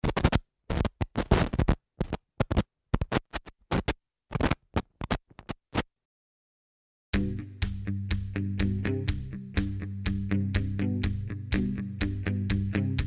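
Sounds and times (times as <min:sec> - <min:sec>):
harsh static bursts: 0:00.0 - 0:04.6.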